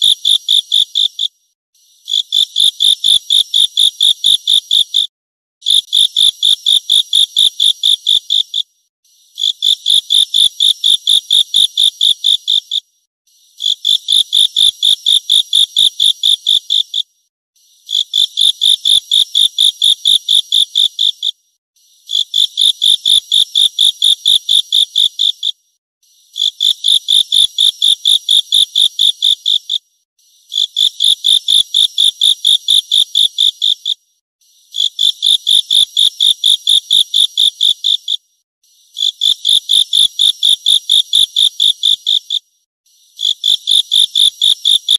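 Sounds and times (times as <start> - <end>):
insect chirping trills: 43.1 - 44.9.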